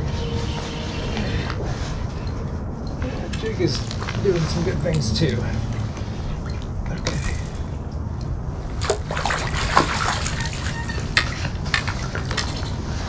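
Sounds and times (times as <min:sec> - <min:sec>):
water splashing and dripping: 0:08.7 - 0:12.9.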